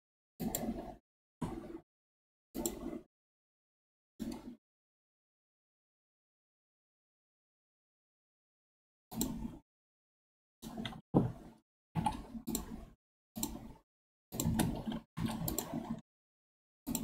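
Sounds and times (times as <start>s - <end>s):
mouse and keyboard clicks: 0.4s - 1.6s, 2.6s - 3.0s, 12.0s - 12.8s, 13.4s - 13.7s, 14.4s - 16.0s
desk handling noise: 10.9s - 11.4s.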